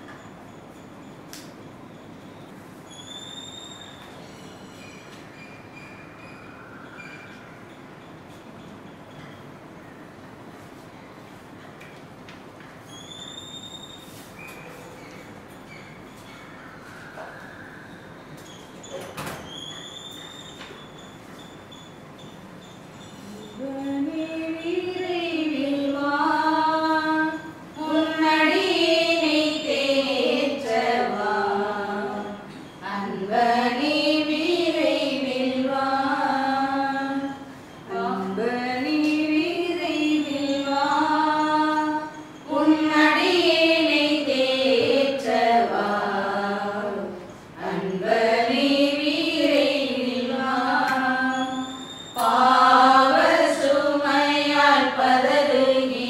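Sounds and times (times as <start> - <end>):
voices singing a hymn: 23.6 - 56.0.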